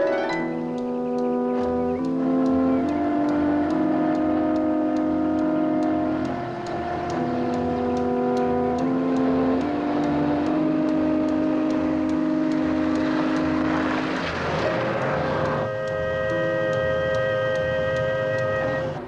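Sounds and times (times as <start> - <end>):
steady high ticking: 0.0 - 19.0
suspense music with held chords: 0.0 - 19.0
pulsing low beat: 0.5 - 14.0.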